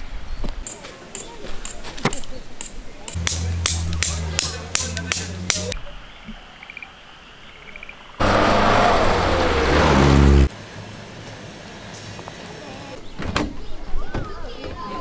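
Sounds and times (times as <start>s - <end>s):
car engine revving: 3.2s - 5.8s, 8.2s - 10.5s.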